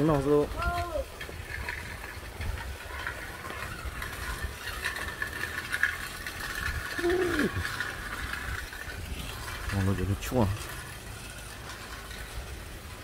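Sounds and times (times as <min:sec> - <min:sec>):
car road noise rumble and hiss: 0:03.3 - 0:13.0.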